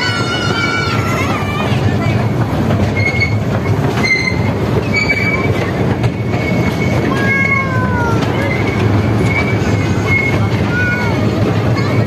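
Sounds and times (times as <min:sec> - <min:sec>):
miniature train rumbling on track: 0:00.0 - 0:12.0
high-pitched wheel squeals: 0:04.0 - 0:05.5, 0:06.3 - 0:11.1.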